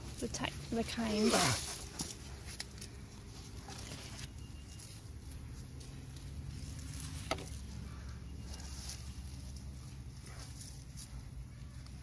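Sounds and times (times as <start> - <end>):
rustling dirt and vines: 0.0 - 12.0
spade digging damp soil: 0.9 - 2.6.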